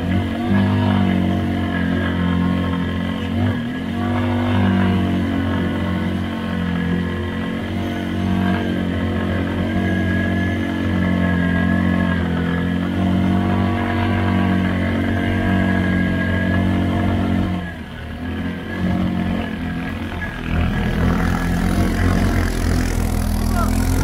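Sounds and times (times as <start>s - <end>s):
atv engine running: 0.0s - 24.0s.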